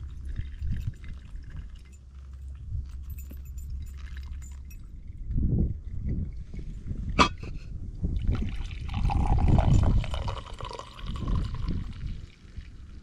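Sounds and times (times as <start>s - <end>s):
cup clink: 7.2s - 7.6s, 8.9s - 11.7s
drink pouring into cup: 8.2s - 13.0s.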